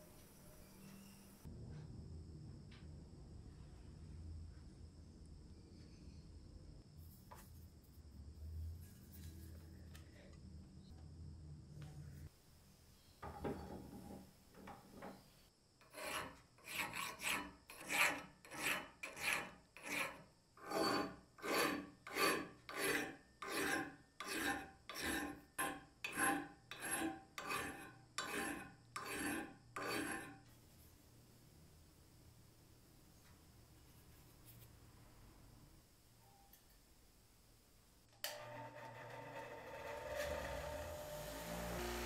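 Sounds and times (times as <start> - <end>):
file rasping on metal: 15.8 - 30.4, 38.3 - 42.0.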